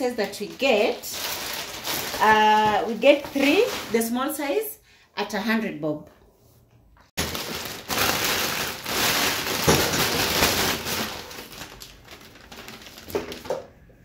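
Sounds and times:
plastic bag rustling: 0.0s - 4.4s, 7.2s - 13.8s.

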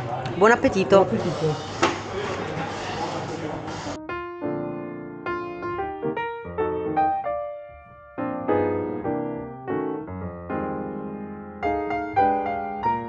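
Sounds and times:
keyboard playing chords and melody: 4.0s - 13.0s.

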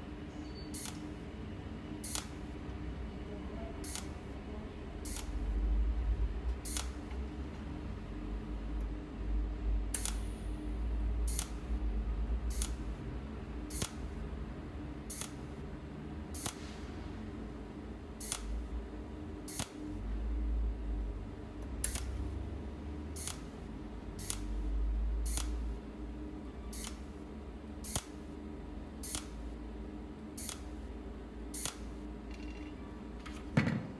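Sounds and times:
welding torch snapping: 0.8s - 1.0s, 2.1s - 2.4s, 6.7s - 7.0s, 10.0s - 10.3s, 11.3s - 11.6s, 12.5s - 12.8s, 13.7s - 14.0s, 15.1s - 15.4s, 16.4s - 16.6s, 18.2s - 18.5s, 19.5s - 19.8s, 21.8s - 22.2s, 23.2s - 23.5s, 24.2s - 24.5s, 25.3s - 25.6s, 26.8s - 27.0s, 27.9s - 28.2s, 29.0s - 29.4s, 30.4s - 30.7s, 31.6s - 31.9s.

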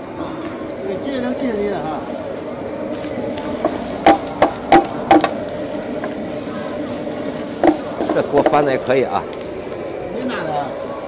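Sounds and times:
steady low hum: 0.0s - 11.0s
metal ladle knocking against wok: 4.1s - 5.3s, 7.6s - 8.6s.

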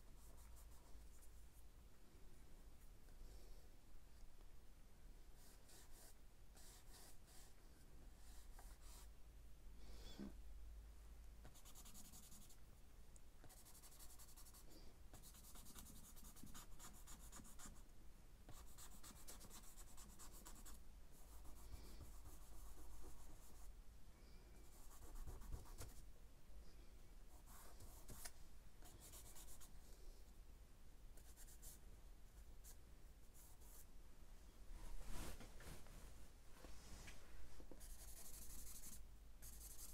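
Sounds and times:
charcoal scratching on paper: 37.8s - 39.9s.

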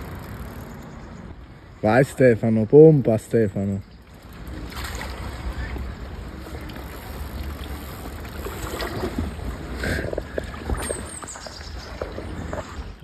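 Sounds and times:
fish thrashing and splashing: 4.1s - 13.0s.

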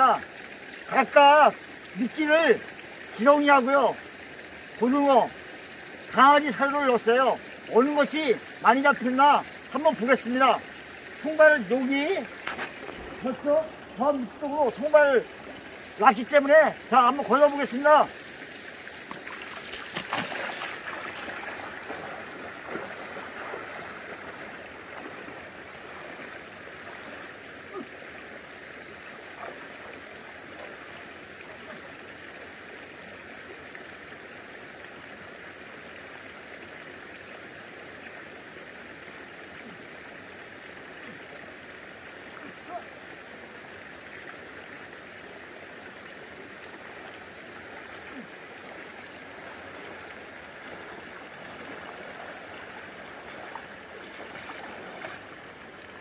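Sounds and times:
stream running over rocks: 0.0s - 56.0s
legs splashing through water: 18.4s - 28.0s, 29.1s - 31.9s, 46.5s - 56.0s.

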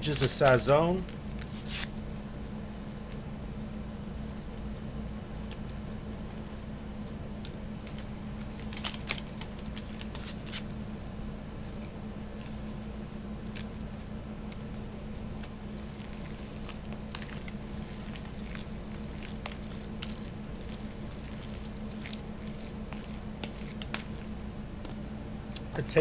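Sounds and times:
steady low hum: 0.0s - 26.0s
spoon mashing wet filling: 15.4s - 24.4s.

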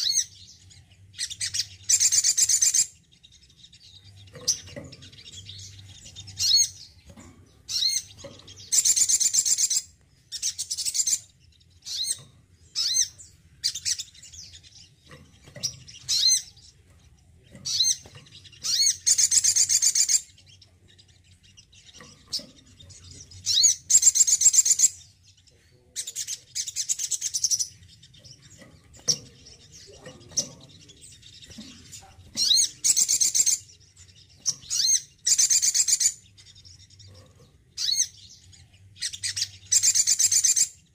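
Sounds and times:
sunbird twittering trills: 0.0s - 40.9s.

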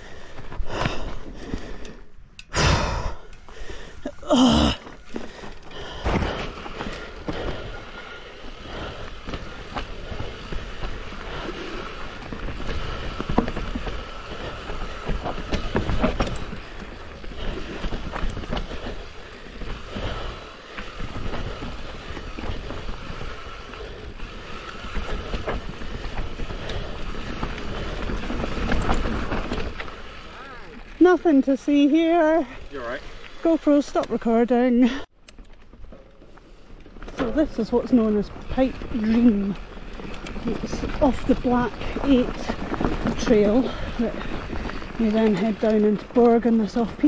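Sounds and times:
mountain bike tyres rattling: 0.0s - 47.0s
bike knocking over bumps: 8.6s - 30.5s.

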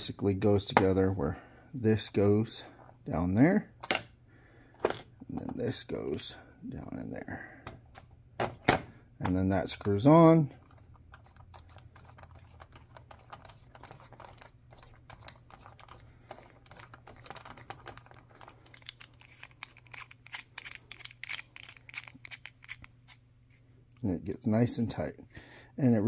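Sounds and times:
metal parts clicking: 10.6s - 23.2s.

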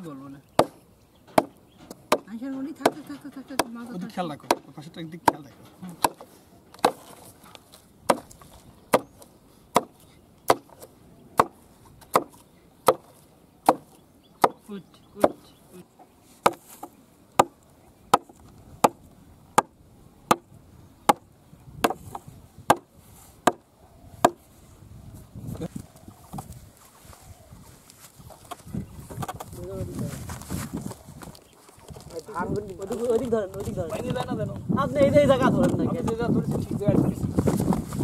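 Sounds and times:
peg hammered into wood: 0.6s - 7.0s, 19.6s - 20.5s, 21.1s - 23.6s.

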